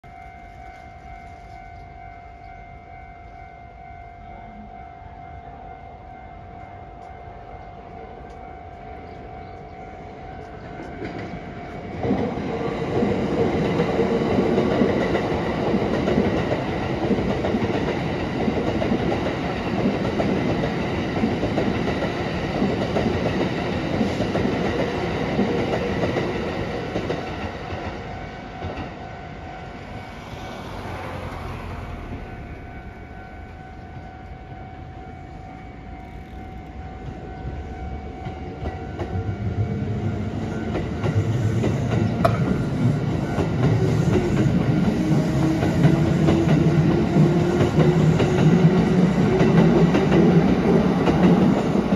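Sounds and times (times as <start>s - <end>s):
crossing warning bell ringing: 0.0s - 51.9s
train wheels clacking over rails: 10.3s - 34.3s, 35.5s - 51.9s.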